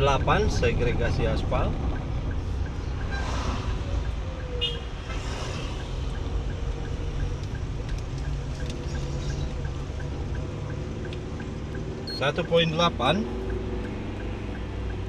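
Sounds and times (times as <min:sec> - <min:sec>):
car engine and tyres rumble: 0:00.0 - 0:15.0
faint light ticking: 0:01.3 - 0:05.0, 0:05.6 - 0:12.7.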